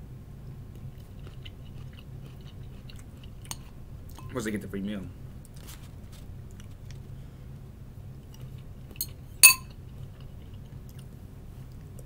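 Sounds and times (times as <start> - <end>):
faint low hum: 0.0 - 12.0
hard objects clinking: 9.4 - 9.7.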